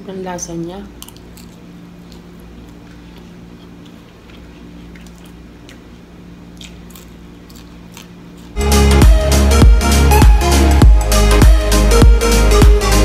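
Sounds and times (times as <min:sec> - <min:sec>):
steady low hum: 0:00.0 - 0:13.0
person chewing: 0:01.0 - 0:08.6
electronic dance music: 0:08.6 - 0:13.0.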